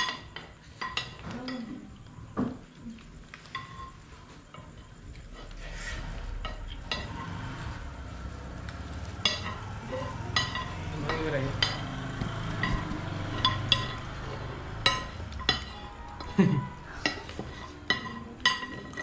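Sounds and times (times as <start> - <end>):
metal utensils clinking: 0.0 - 2.0, 6.2 - 19.0.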